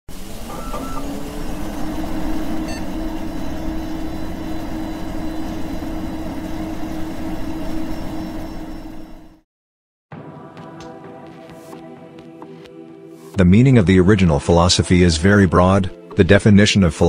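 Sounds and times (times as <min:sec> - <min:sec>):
constant hum: 0:00.1 - 0:09.3.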